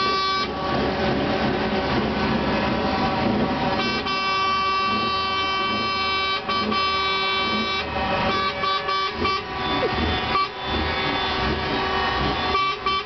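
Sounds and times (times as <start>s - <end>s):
truck air horn blast: 0.0s - 0.6s, 3.7s - 13.0s
engines and traffic: 0.0s - 13.0s.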